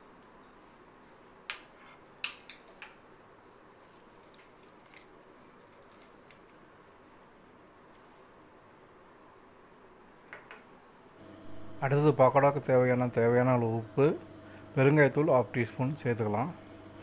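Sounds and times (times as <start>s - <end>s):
leaves snapping and rustling: 4.0s - 6.6s.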